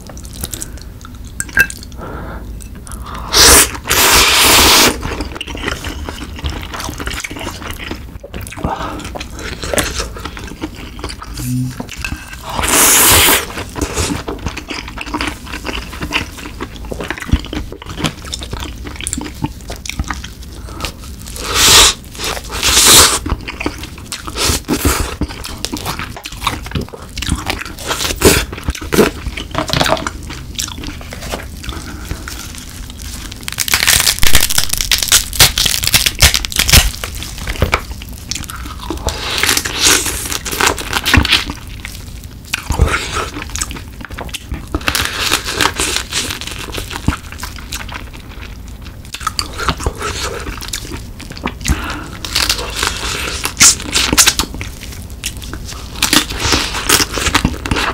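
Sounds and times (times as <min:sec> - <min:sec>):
sucking and chewing: 0:00.0 - 0:57.9
slurping broth: 0:03.3 - 0:05.1
crab shell cracking and crunching: 0:13.4 - 0:57.9.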